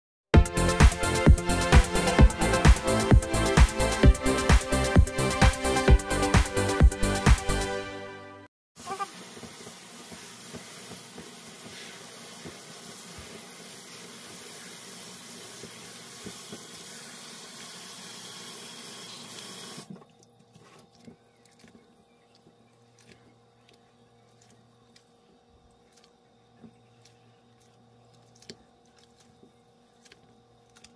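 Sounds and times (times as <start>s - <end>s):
hands kneading in water: 19.7s - 30.9s.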